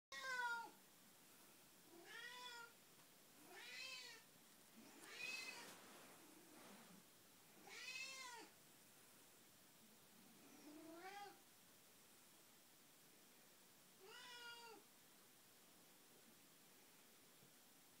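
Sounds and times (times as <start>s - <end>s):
cat meowing: 0.1s - 0.8s, 1.9s - 2.8s, 3.4s - 4.3s, 5.0s - 5.7s, 7.6s - 8.5s, 10.7s - 11.4s, 14.0s - 14.8s.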